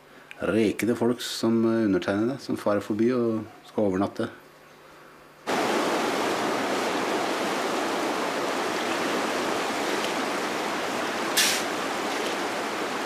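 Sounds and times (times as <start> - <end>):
stream rushing: 5.5 - 13.0.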